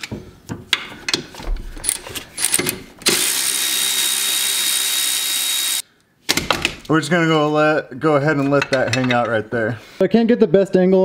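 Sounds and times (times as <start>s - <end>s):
cordless electric ratchet whining: 2.4s - 5.8s
metal tools clicking and tapping: 8.5s - 9.4s.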